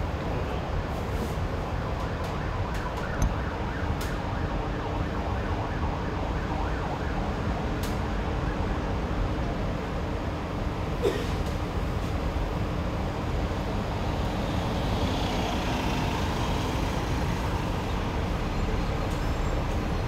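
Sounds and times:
rail car running rumble: 0.0s - 3.4s, 9.2s - 20.0s.

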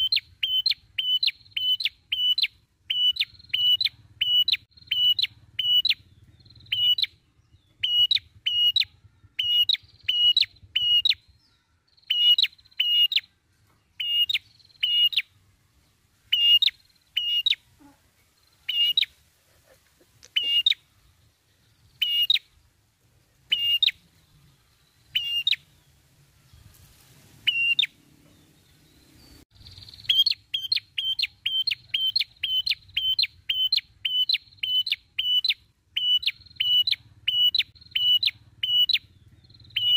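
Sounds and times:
bird calling sharp high notes: 0.0s - 7.2s, 7.8s - 13.3s, 27.5s - 27.9s, 29.6s - 39.9s.

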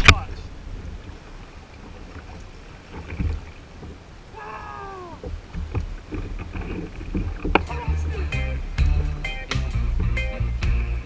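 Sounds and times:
water lapping against hull: 0.0s - 11.0s
wind buffeting microphone: 0.0s - 11.0s
short cry falling in pitch: 4.3s - 5.3s.

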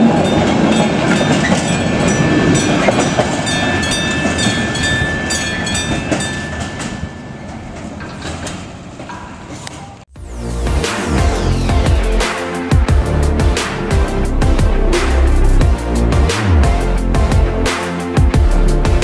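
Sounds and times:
level crossing warning bell: 0.0s - 9.9s
freight wagons rolling past: 0.0s - 10.0s.

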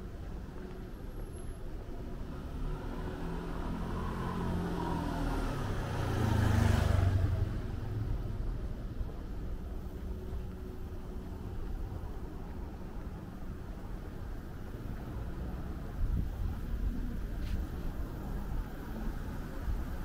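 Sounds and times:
car driving past: 2.2s - 8.5s.

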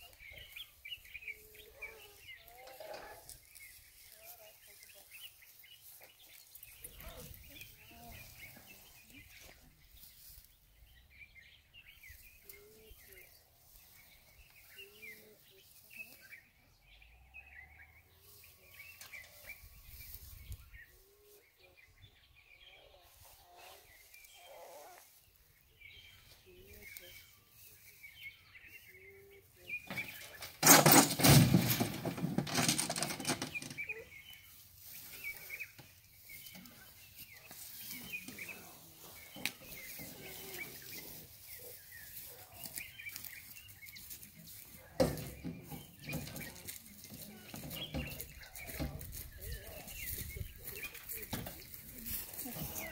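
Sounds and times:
birds chirping: 0.0s - 52.9s
metal cage clattering: 30.0s - 33.8s.

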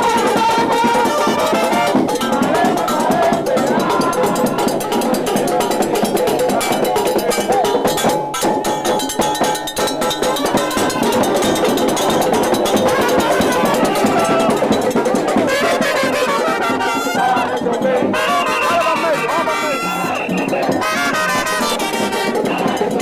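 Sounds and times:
brass playing: 0.0s - 2.1s, 12.7s - 22.9s
cowbell: 0.0s - 23.0s
hand drums: 0.0s - 23.0s.

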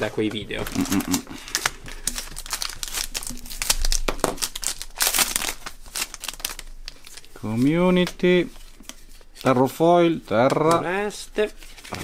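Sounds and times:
foil wrapper crinkling and tearing: 0.0s - 9.0s.

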